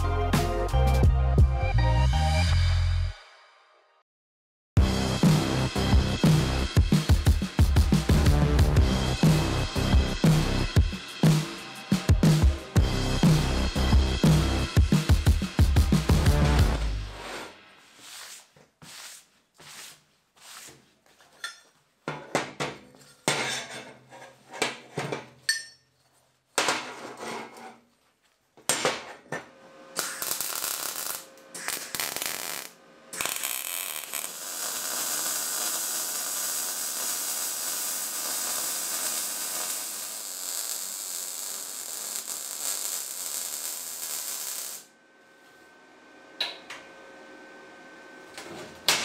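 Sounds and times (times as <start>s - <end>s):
welder crackling: 30.0s - 44.9s.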